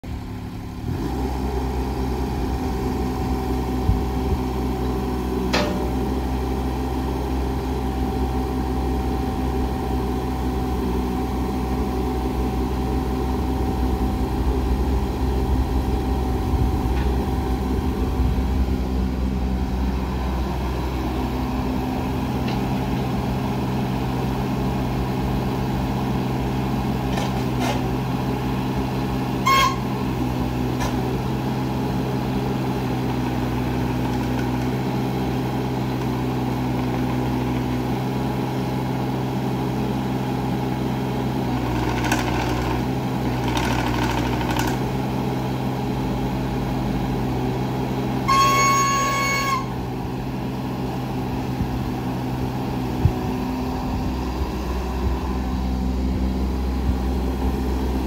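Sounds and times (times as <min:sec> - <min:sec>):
excavator diesel engine running: 0:00.0 - 0:58.0
hydraulic whine: 0:29.4 - 0:30.1, 0:47.4 - 0:50.4.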